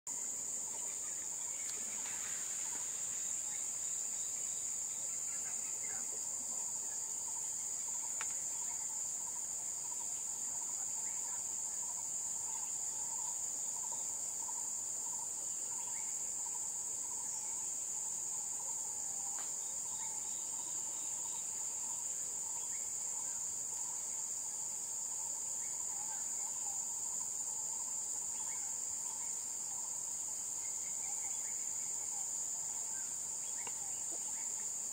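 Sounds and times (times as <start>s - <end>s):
high-pitched insect chorus: 0.1s - 34.9s
low pulsing insect trill: 0.1s - 34.9s.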